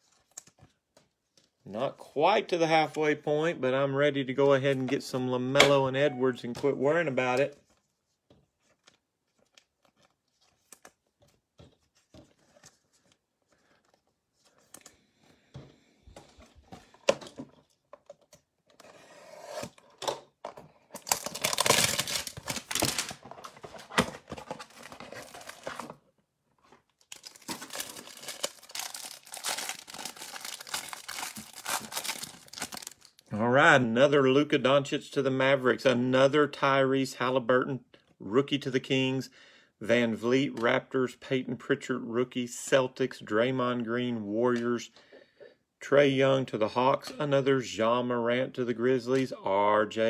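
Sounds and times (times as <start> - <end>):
cellophane crinkling and ripping: 20.9 - 26.0, 26.6 - 33.3.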